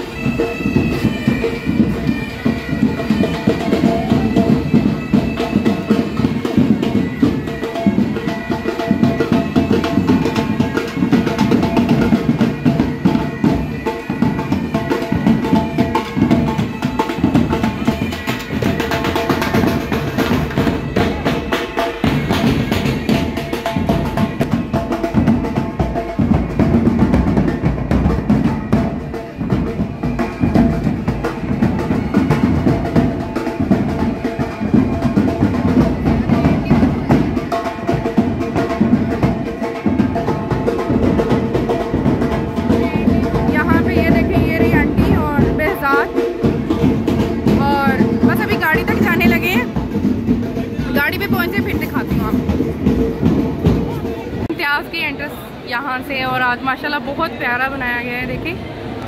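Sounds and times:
bagpipes playing over drone: 0:00.0 - 0:38.4
bass drum beating: 0:38.0 - 0:54.6.

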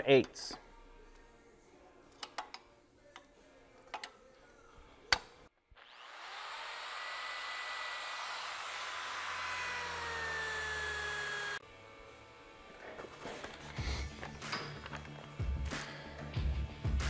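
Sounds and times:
electric drill drilling steel: 0:05.8 - 0:11.6.

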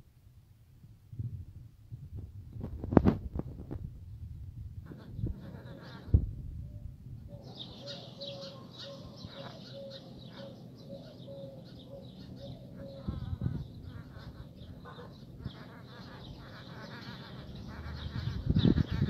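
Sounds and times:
low steady hum: 0:00.0 - 0:19.0
animal calling: 0:04.8 - 0:06.2, 0:07.3 - 0:19.0.

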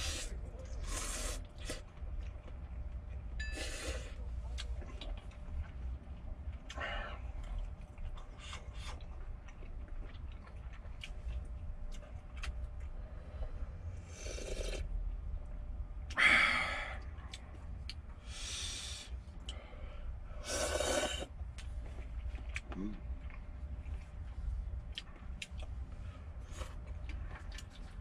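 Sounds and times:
person slurping noodles: 0:14.1 - 0:14.9, 0:20.4 - 0:21.3.

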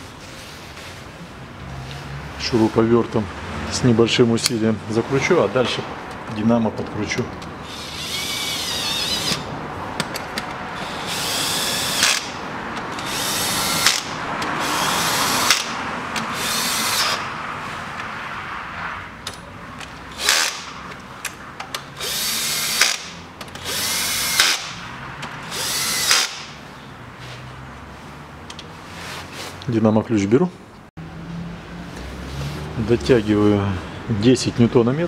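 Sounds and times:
cordless drill running: 0:07.6 - 0:09.4, 0:10.8 - 0:17.2, 0:22.0 - 0:24.7, 0:25.4 - 0:26.5.

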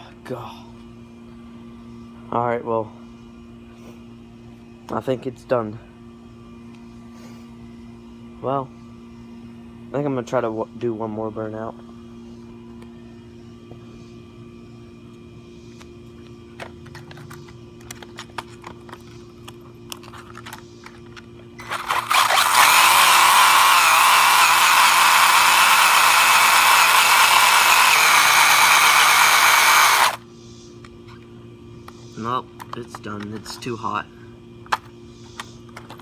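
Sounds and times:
tyres spinning on concrete: 0:21.6 - 0:30.2
rc car motor high whine: 0:21.6 - 0:30.3.

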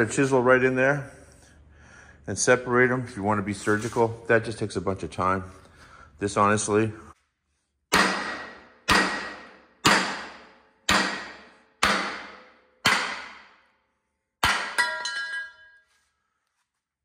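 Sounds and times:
hammer striking steel: 0:07.9 - 0:13.8, 0:14.4 - 0:15.8.

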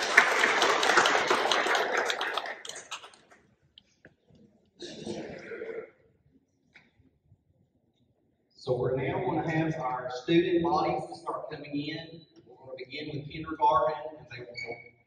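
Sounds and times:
audience clapping: 0:00.0 - 0:03.4.

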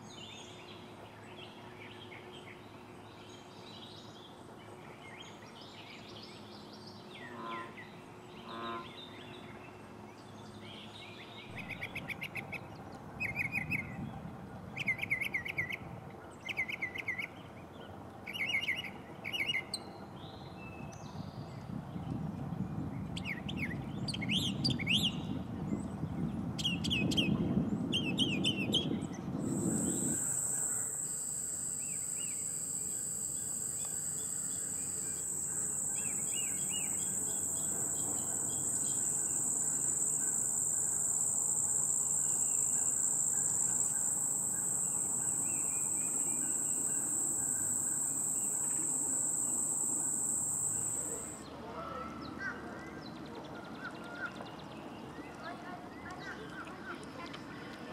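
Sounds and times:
high-pitched insect drone: 0:29.4 - 0:51.4
mockingbird singing: 0:34.1 - 0:41.1.

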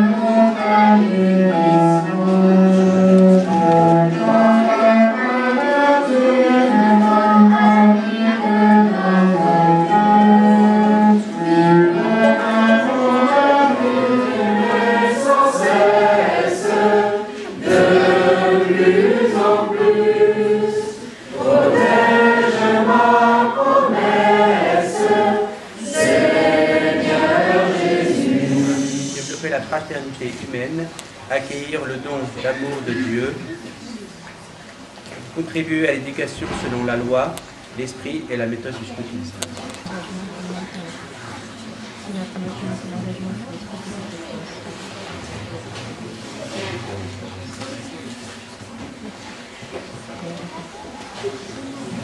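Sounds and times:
cello slow melody: 0:00.0 - 0:29.3
children singing in chorus: 0:00.0 - 0:29.4.

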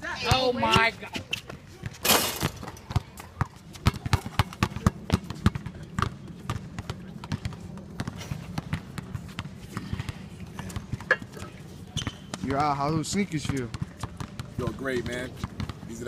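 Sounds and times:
basketball dribbling: 0:02.6 - 0:11.2.

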